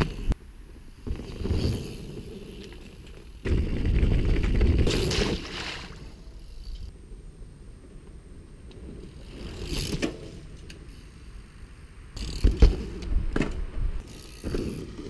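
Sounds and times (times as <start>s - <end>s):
bike tyres rolling over dirt: 0.0s - 6.9s, 7.7s - 15.0s
bike thumps and clicks: 12.2s - 15.0s.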